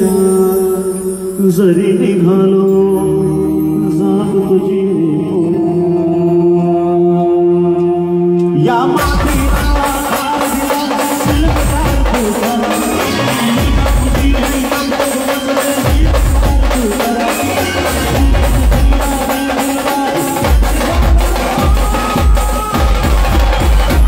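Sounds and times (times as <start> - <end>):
side drums: 7.8 - 24.0
heavy bass drum beats: 8.9 - 24.0
brass band playing: 12.5 - 14.4, 17.2 - 19.0.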